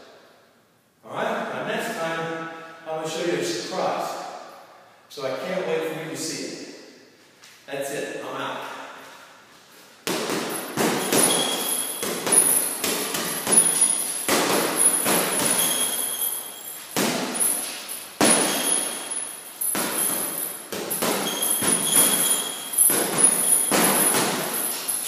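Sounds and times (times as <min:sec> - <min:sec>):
gloves punching heavy bag: 0:10.0 - 0:25.0.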